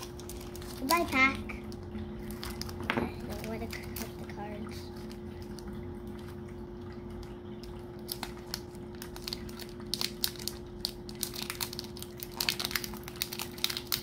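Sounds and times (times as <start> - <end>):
foil wrapper crinkling: 0.0 - 4.4, 7.6 - 14.0.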